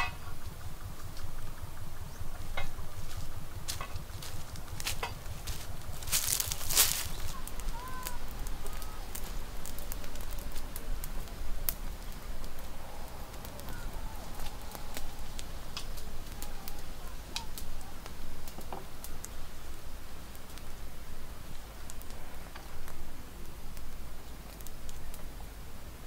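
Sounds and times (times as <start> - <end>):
wood fire crackling: 0.0 - 26.0
sharp pops of fire: 2.5 - 25.5
faint chirps: 6.2 - 10.1, 12.0 - 15.7.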